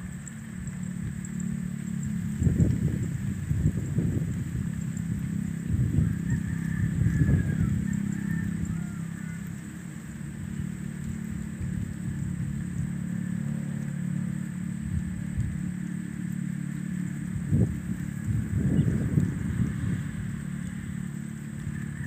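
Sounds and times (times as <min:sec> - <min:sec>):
motor engine humming: 0:00.0 - 0:22.0
wind rumbling on microphone: 0:00.0 - 0:22.0.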